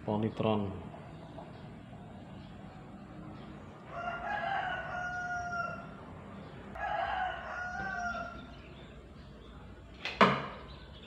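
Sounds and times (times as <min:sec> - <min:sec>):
rooster crowing: 0:03.8 - 0:08.6.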